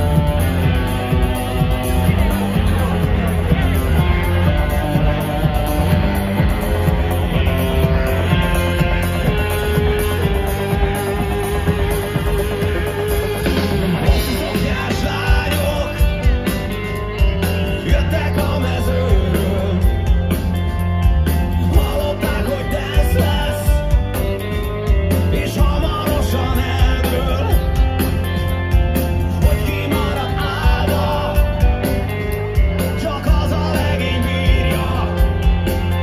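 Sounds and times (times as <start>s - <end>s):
electric guitar: 0.0s - 36.0s
heavy bass and drum beat: 0.0s - 36.0s
rock band playing live: 0.0s - 36.0s
man singing: 14.0s - 20.4s, 21.5s - 24.0s, 25.1s - 28.2s, 29.2s - 36.0s.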